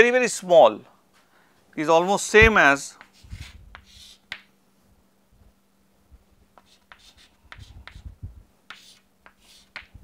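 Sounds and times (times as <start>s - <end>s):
faint steady hum: 0.0s - 10.0s
chalk tapping and scratching: 2.9s - 4.5s, 6.5s - 8.1s, 8.7s - 10.0s.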